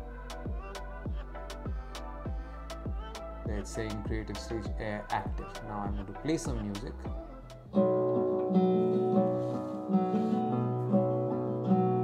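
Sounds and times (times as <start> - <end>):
strummed acoustic guitar music: 3.6 - 12.0.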